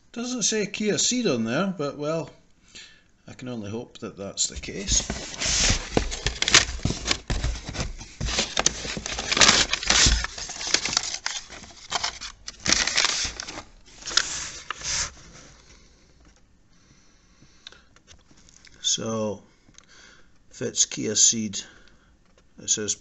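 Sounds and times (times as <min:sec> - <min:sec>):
scrapes and small knocks: 0:04.5 - 0:15.5
cardboard boxes being handled: 0:04.5 - 0:15.6
paper rustling and crinkling: 0:04.5 - 0:16.4.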